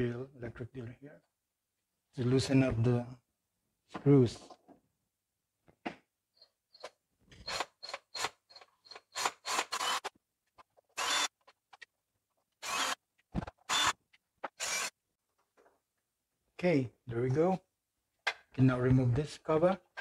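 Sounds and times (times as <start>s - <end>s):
cordless drill running in bursts: 9.1s - 10.1s, 11.0s - 11.3s, 12.6s - 13.0s, 13.7s - 13.9s, 14.6s - 14.9s.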